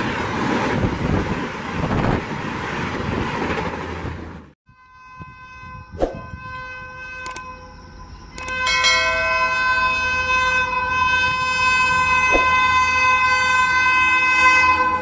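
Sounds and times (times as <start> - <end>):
locomotive horn: 4.7 - 15.0.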